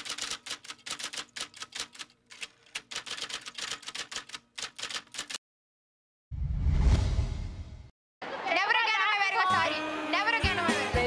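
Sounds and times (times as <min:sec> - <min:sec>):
typewriter keys clacking: 0:00.0 - 0:05.4.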